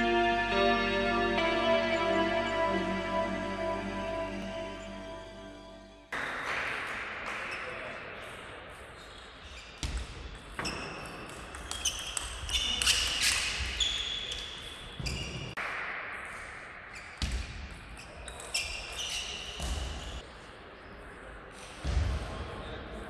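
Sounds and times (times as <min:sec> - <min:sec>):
shoe squeaks: 0:11.7 - 0:15.5, 0:18.2 - 0:20.2.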